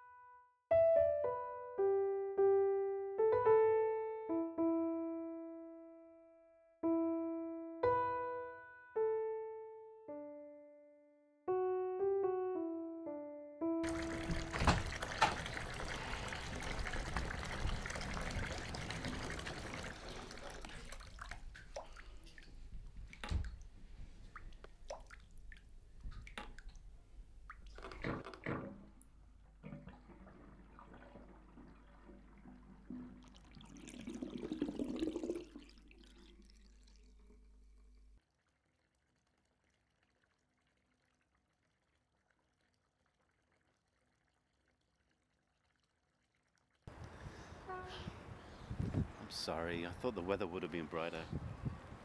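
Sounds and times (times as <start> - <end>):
water splashing in sink: 13.8 - 38.1
water running: 13.8 - 38.2
small knocks: 27.6 - 31.2.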